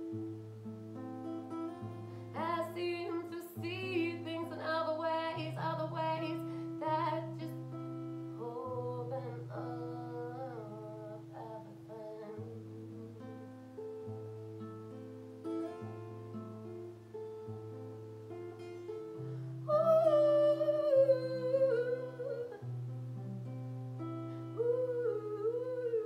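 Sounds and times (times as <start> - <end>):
woman singing a slow melody: 1.7 - 13.9, 19.2 - 23.0, 24.0 - 26.0.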